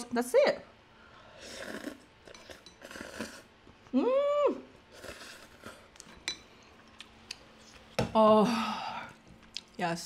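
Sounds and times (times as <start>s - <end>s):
noodles being slurped: 1.4s - 3.5s
person humming: 3.3s - 4.6s.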